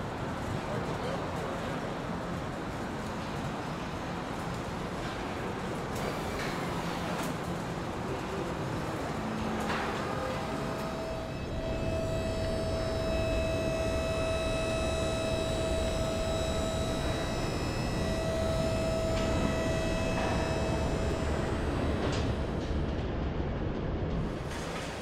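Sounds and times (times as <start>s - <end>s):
factory rumble and hiss: 0.0s - 25.0s
machinery whining tones: 9.4s - 23.1s.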